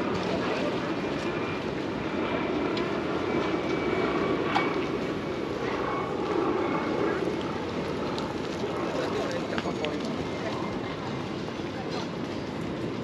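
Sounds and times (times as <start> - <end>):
city background roar: 0.0 - 13.0.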